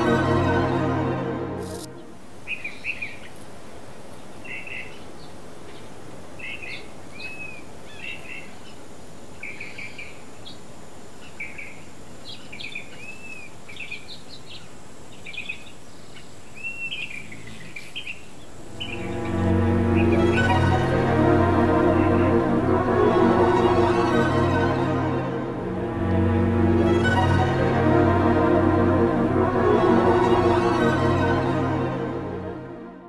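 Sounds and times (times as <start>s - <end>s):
background music: 0.0s - 2.2s, 18.6s - 33.0s
background hiss: 0.0s - 33.0s.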